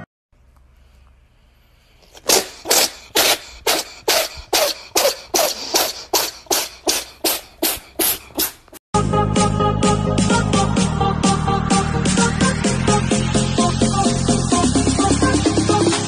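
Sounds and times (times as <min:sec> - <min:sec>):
person making breathy bursts: 0:02.0 - 0:08.8.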